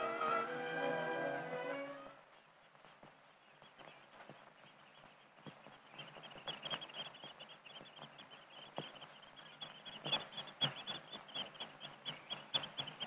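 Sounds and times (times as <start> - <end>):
oystercatchers piping: 0.0 - 13.0.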